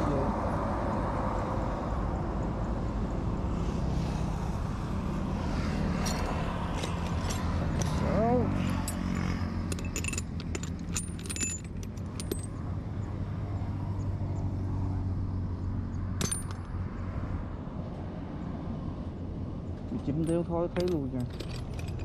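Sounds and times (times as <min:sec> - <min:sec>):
metal parts clinking and rattling: 0:06.0 - 0:12.6, 0:16.2 - 0:16.7, 0:19.8 - 0:22.0.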